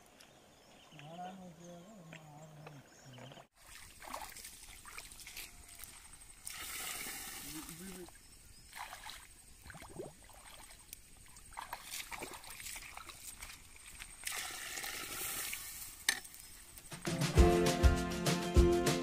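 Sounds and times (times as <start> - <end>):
river water sloshing and trickling: 2.0 - 16.8
music: 17.0 - 19.0.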